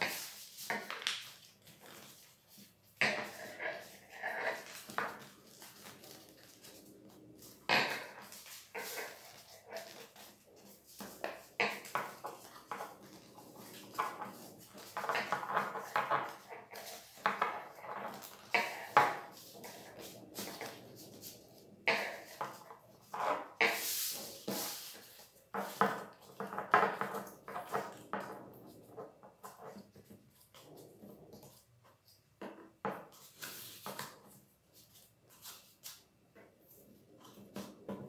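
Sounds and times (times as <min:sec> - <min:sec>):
paper rustling and crinkling: 0:03.4 - 0:21.4.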